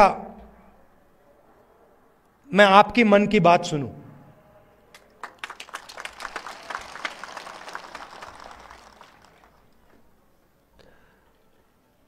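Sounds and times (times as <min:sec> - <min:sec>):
crowd applause: 0:04.9 - 0:09.8.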